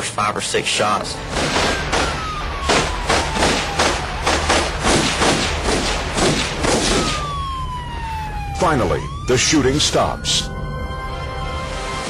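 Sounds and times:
rapid gunshots: 0:01.2 - 0:07.4
faint siren wailing: 0:01.4 - 0:12.0.

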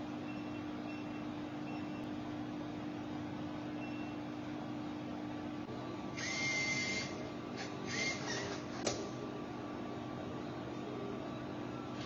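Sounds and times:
vending machine hum: 0:00.0 - 0:12.0
motor whirr with whine: 0:05.6 - 0:09.0.

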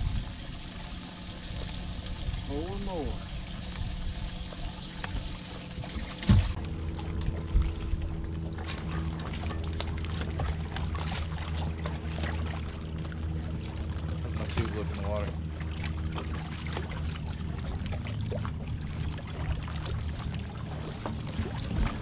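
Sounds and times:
steady low hum: 0:00.0 - 0:22.0
waves lapping against boat hull: 0:00.0 - 0:22.0
thump: 0:06.2 - 0:06.6.

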